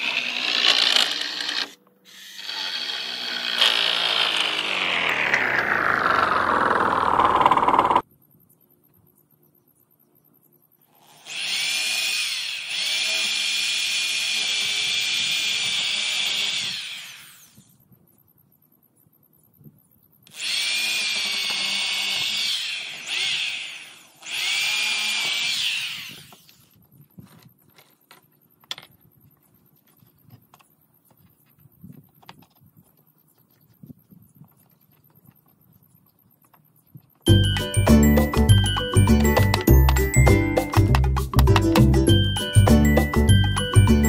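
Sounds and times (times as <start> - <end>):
electric drill boring into wood: 0.0 - 8.0, 11.0 - 17.7, 20.3 - 26.7.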